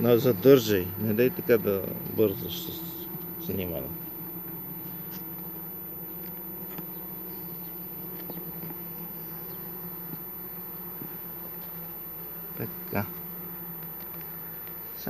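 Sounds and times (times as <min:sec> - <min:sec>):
honeybees buzzing: 0:00.0 - 0:15.0.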